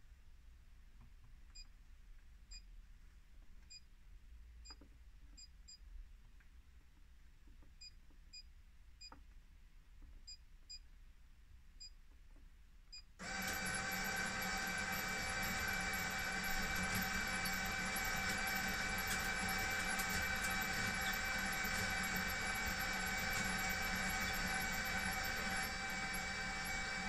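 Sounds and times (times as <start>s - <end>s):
blind motor whine: 13.2s - 27.0s.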